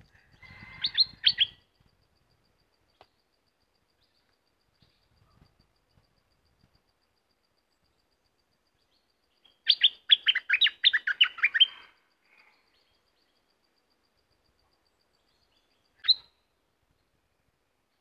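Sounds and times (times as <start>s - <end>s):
bird singing whistled notes: 0.4s - 1.6s, 8.8s - 11.9s, 15.1s - 17.1s.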